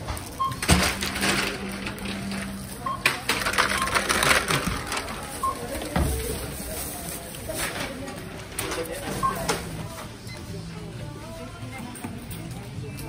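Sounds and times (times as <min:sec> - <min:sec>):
checkout scanner beep: 0:00.0 - 0:06.7, 0:08.1 - 0:10.9
plastic bag rustling: 0:00.1 - 0:09.0.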